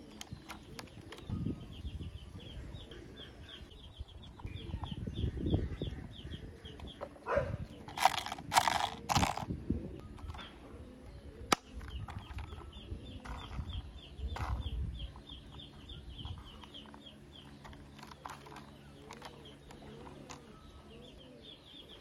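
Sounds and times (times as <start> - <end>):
plastic toy parts rubbing and knocking: 0.0 - 1.3, 7.7 - 9.5, 11.5 - 20.5.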